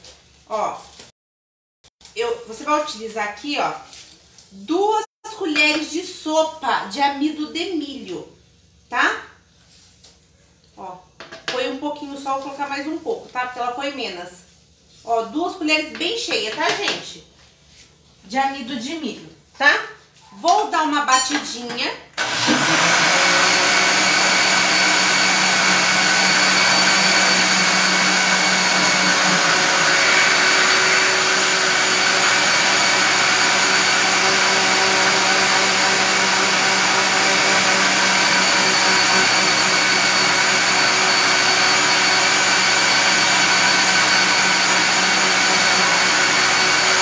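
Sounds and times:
electric blender whirring: 22.2s - 47.0s.

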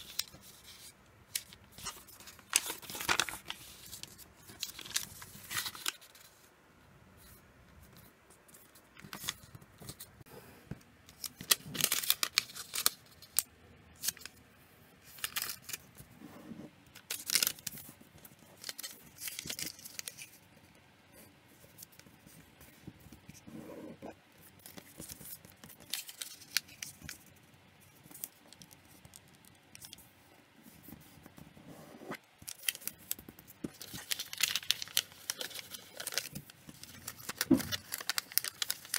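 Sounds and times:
paper rustling and crinkling: 0.0s - 6.5s, 11.1s - 14.3s, 15.0s - 20.4s, 24.4s - 30.0s, 32.4s - 38.9s.

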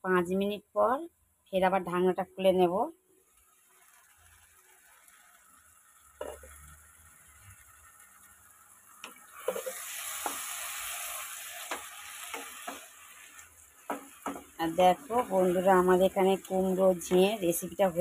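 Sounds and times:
food sizzling: 2.0s - 18.0s
spatula scraping pan: 9.0s - 14.6s.

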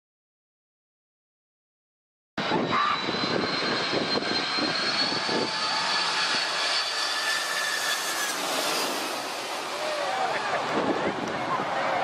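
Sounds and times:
jet engines whining: 2.4s - 12.0s.

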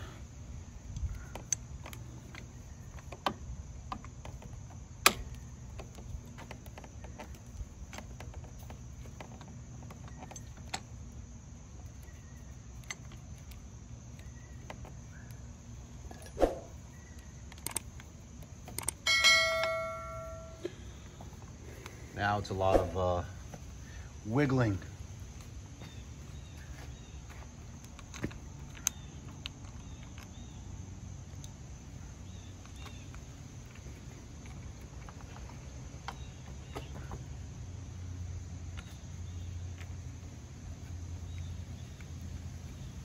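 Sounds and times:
bell chime: 19.1s - 20.7s.

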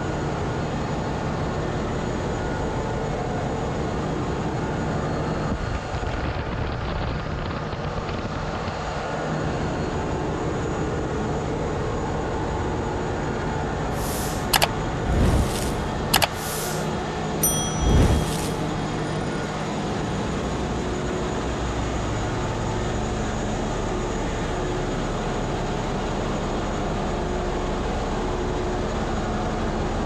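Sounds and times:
diesel generator drone: 7.4s - 30.0s
sharp clicks: 14.2s - 16.8s.

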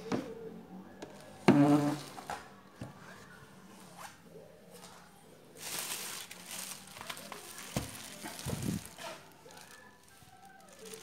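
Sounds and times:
plastic rustling scrape: 4.8s - 11.0s.

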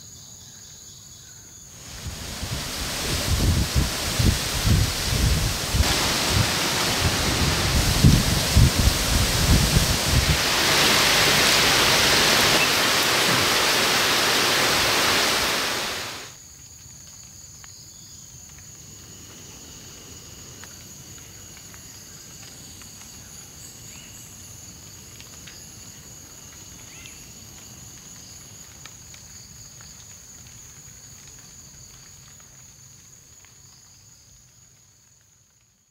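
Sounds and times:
falling water rushing: 1.8s - 16.4s.

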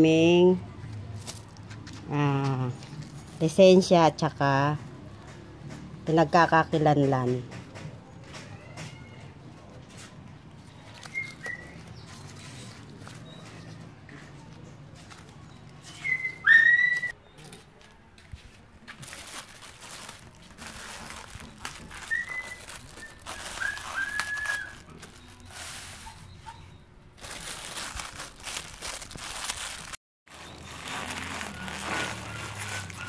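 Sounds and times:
cellophane rustling and crinkling: 10.6s - 13.7s, 18.5s - 26.4s, 27.2s - 33.0s
short whistle-like calls: 15.9s - 17.1s, 22.1s - 24.8s.

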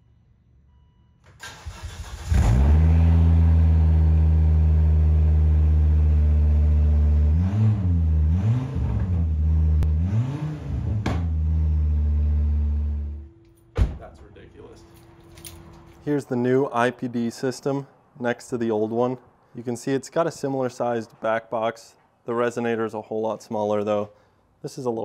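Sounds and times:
car engine cranking: 1.3s - 3.0s
car engine revving: 1.6s - 13.2s.

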